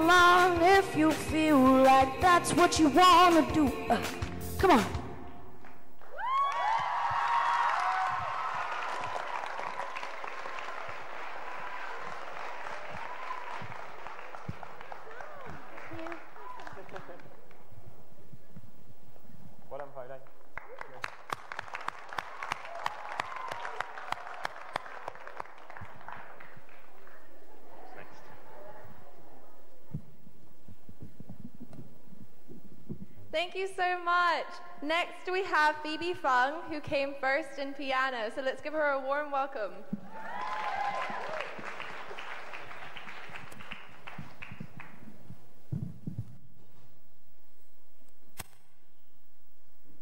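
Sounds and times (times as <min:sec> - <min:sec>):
audience applauding: 0:06.0 - 0:17.6, 0:20.2 - 0:28.4, 0:40.0 - 0:45.2
low thumps: 0:29.8 - 0:33.4, 0:44.2 - 0:46.7.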